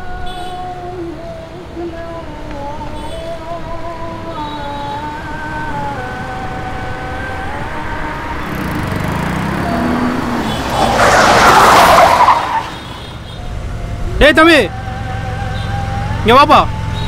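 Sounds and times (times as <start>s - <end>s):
car engine rumble: 0.0s - 17.0s
tyres skidding on dirt: 8.4s - 14.7s.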